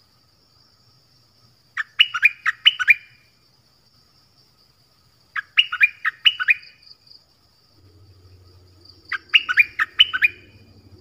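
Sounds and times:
bulbul singing sharp rising notes: 0:07.7 - 0:11.0.

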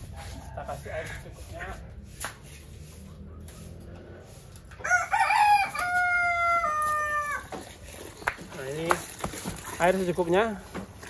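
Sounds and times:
rooster crowing: 0:04.8 - 0:07.5.

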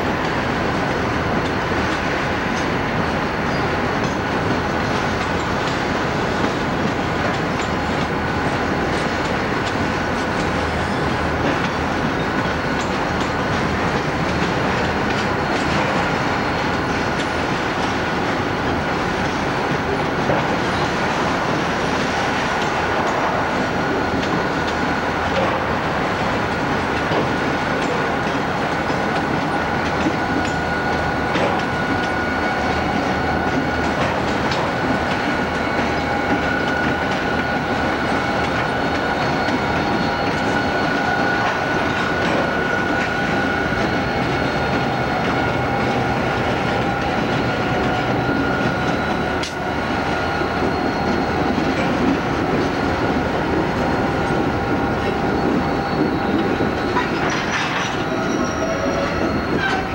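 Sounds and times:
diesel locomotive engines whining: 0:00.0 - 0:59.9
wheels clicking over rail joints: 0:54.3 - 0:59.9.

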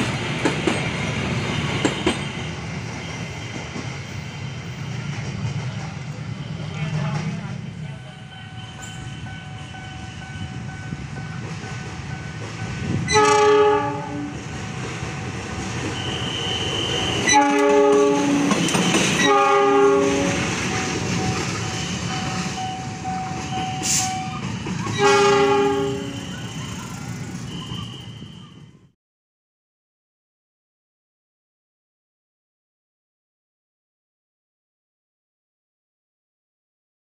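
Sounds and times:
train rumble and wheel clatter: 0:00.0 - 0:28.9
locomotive horn blasts: 0:13.1 - 0:14.4, 0:15.9 - 0:22.6, 0:24.9 - 0:28.6.

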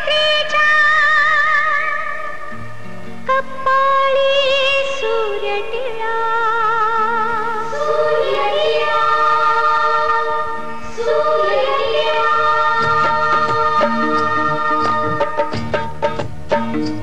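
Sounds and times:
woman singing wordless notes: 0:03.2 - 0:15.2
percussion strikes: 0:12.8 - 0:17.0.

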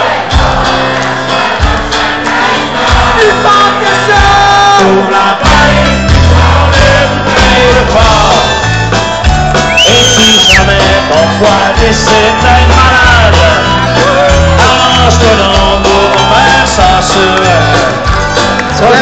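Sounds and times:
live folk-rock band playing: 0:00.0 - 0:19.0.

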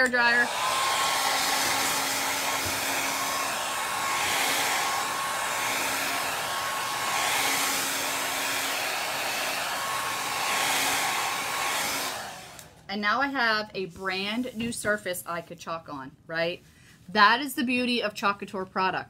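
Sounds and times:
hair dryer blowing with whine: 0:00.0 - 0:12.9.

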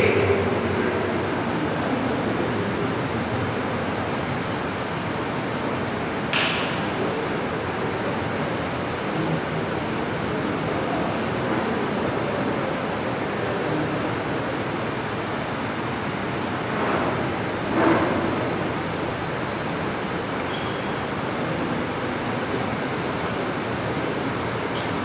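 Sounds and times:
rushing fan noise: 0:00.0 - 0:25.0.

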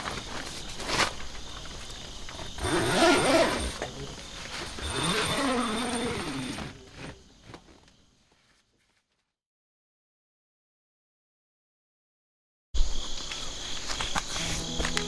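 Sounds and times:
insect trilling: 0:00.2 - 0:07.6
animal calls rising and falling: 0:02.6 - 0:03.8, 0:04.8 - 0:06.8.

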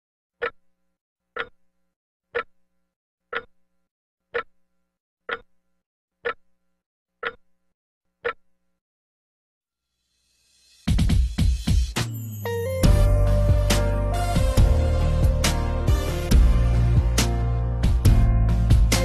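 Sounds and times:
sharp clock-like ticks: 0:00.4 - 0:00.7, 0:01.3 - 0:01.7, 0:02.4 - 0:02.6, 0:03.3 - 0:03.6, 0:04.3 - 0:04.6, 0:05.3 - 0:05.6, 0:06.2 - 0:06.5, 0:07.2 - 0:07.5, 0:08.2 - 0:08.5.

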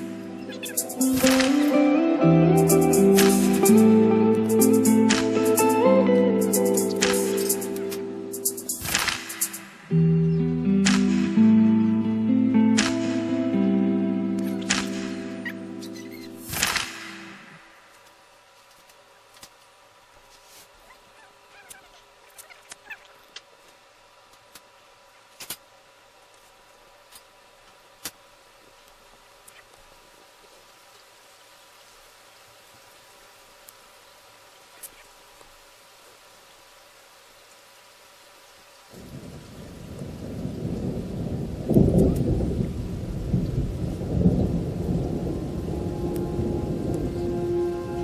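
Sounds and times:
faint steady hum: 0:00.0 - 0:48.0
rain: 0:00.0 - 0:48.0
rolling thunder: 0:39.0 - 0:48.0.

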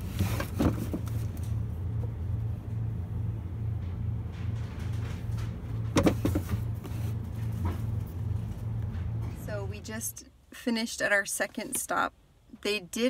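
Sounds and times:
pulsing low rumbling hum: 0:00.0 - 0:10.3.

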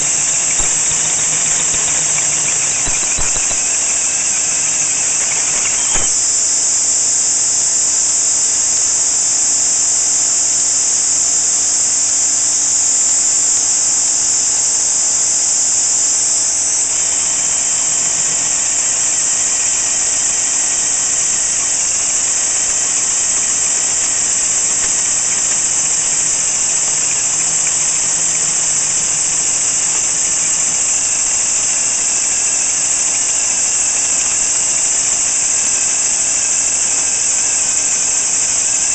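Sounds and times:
hole saw squealing through steel: 0:00.0 - 0:06.2
compressed air hissing: 0:00.0 - 0:06.4.

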